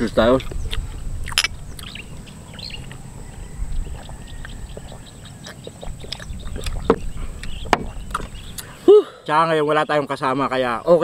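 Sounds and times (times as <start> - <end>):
low background rumble: 0.0 - 8.7
faint bird chirps: 1.5 - 10.8.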